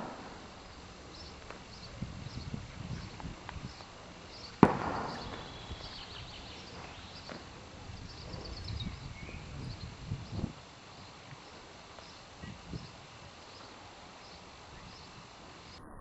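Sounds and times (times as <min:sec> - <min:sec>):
gunshot with echo: 0:00.0 - 0:03.8, 0:04.4 - 0:08.6
bird chirps: 0:00.0 - 0:15.8.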